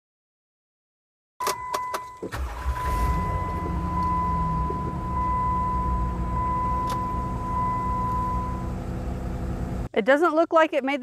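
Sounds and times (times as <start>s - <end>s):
car engine starting and idling: 1.4s - 9.9s
click: 6.8s - 7.1s.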